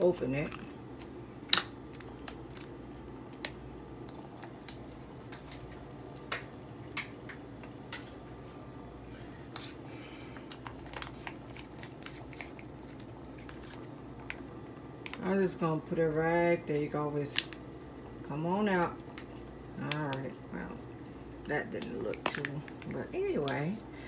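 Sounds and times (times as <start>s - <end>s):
low room hum: 0.0s - 24.0s.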